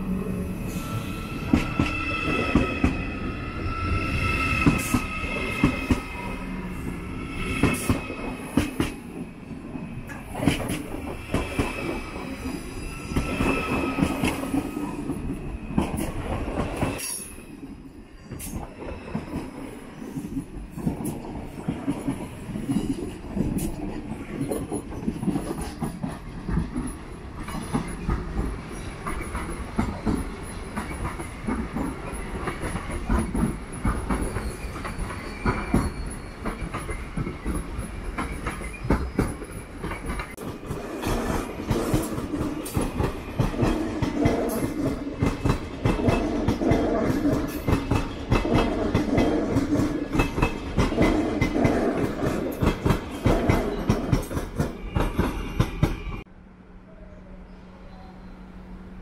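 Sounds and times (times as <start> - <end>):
train wheels clacking over rail joints: 20.7 - 56.1.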